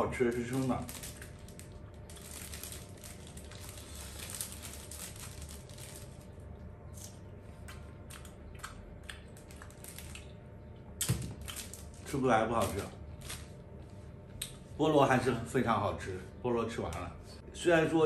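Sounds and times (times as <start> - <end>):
plastic bag crinkling: 0.0 - 6.4, 9.2 - 10.3, 11.1 - 13.6
faint room hum: 0.0 - 18.0.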